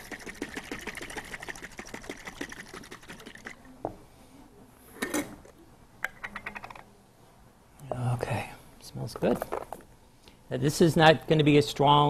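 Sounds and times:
dressing shaken in glass jar: 0.0s - 3.7s.

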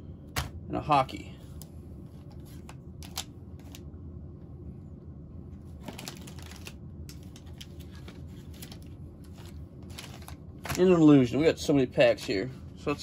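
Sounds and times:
steady low hum: 0.0s - 13.0s
plastic wrappers crinkling: 5.8s - 10.9s.

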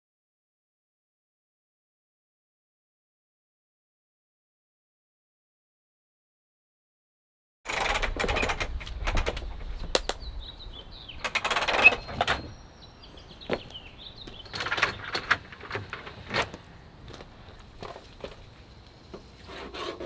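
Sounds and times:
awning arms rattling: 7.7s - 9.8s, 11.2s - 12.5s
birds chirping faintly: 8.3s - 19.4s.

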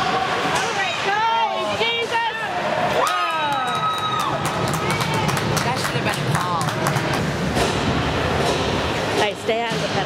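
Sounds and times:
crowd cheering and yelling: 0.0s - 5.8s.

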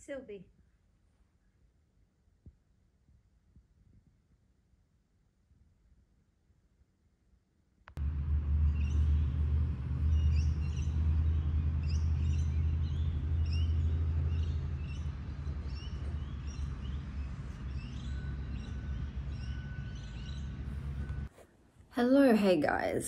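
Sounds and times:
low rumble: 8.0s - 21.3s
small birds chirping: 10.0s - 21.3s.

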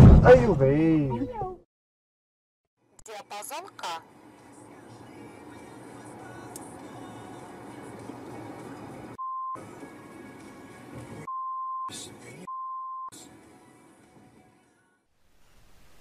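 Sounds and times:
road noise inside a car: 3.1s - 11.3s, 11.9s - 12.5s
censor bleeps: 11.3s - 13.2s.

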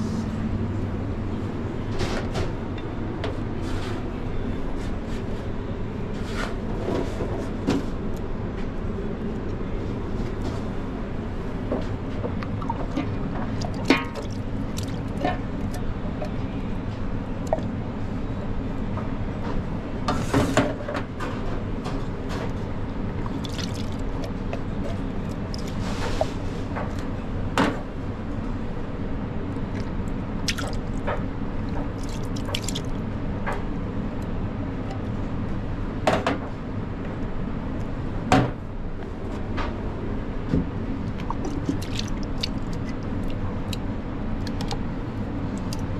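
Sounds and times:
wet plops and squishes: 12.5s - 15.8s, 23.1s - 27.1s, 29.7s - 31.1s, 31.7s - 33.0s, 41.0s - 44.8s.

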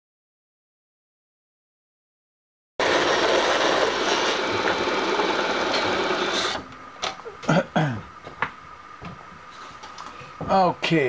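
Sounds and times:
milling machine cutting metal: 2.8s - 6.7s.

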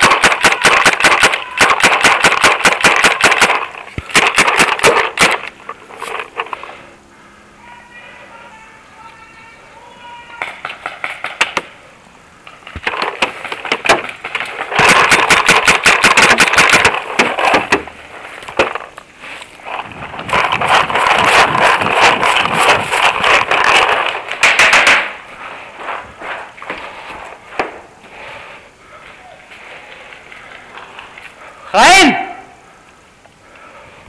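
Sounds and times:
paintball markers firing: 0.0s - 6.6s, 12.8s - 17.9s.

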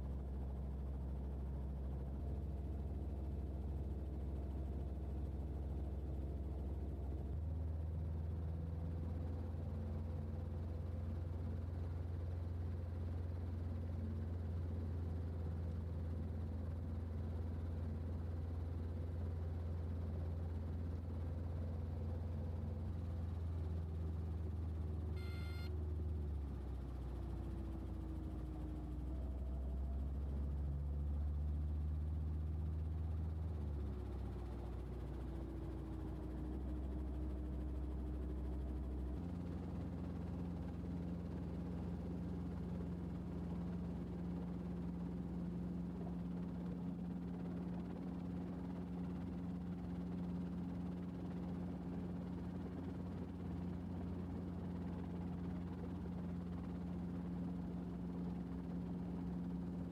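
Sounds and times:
helicopter engine and rotor drone: 0.0s - 59.9s
high electronic tone: 25.2s - 25.7s.

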